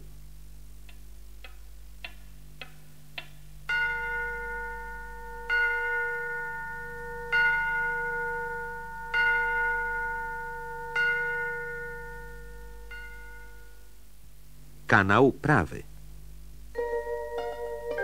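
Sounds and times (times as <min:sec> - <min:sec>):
bell-like chime: 0:03.8 - 0:13.8.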